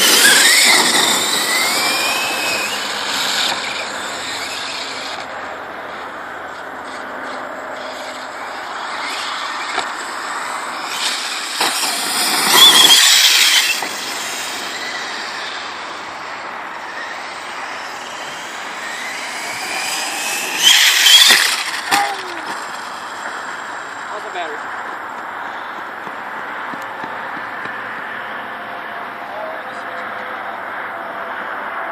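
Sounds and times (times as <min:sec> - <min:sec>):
rc truck motor whining: 0:00.0 - 0:24.7.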